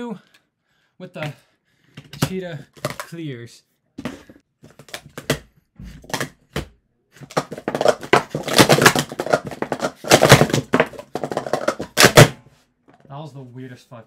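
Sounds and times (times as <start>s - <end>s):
plastic cups clacking: 2.0s - 3.2s, 6.0s - 12.3s.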